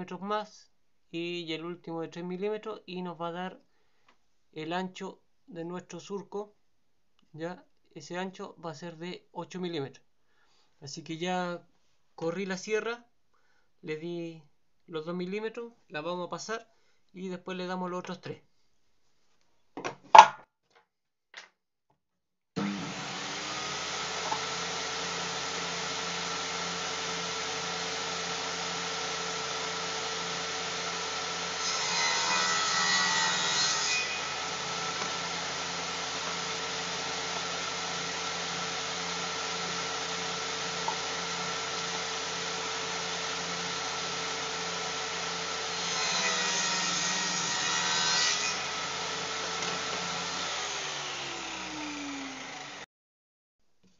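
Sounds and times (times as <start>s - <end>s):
saw blade cutting wood: 22.6s - 52.9s
table saw motor hum: 22.6s - 52.9s.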